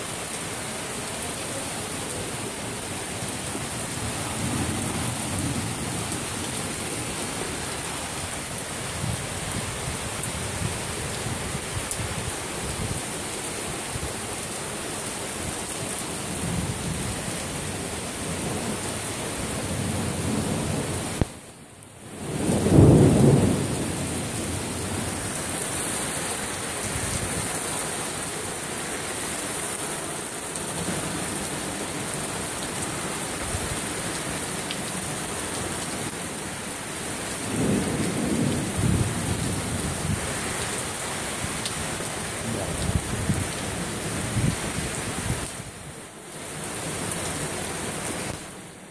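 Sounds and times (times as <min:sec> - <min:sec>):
heavy rain and wind: 0:00.0 - 0:48.9
thunder clap and rumble: 0:22.3 - 0:24.9, 0:37.5 - 0:40.4.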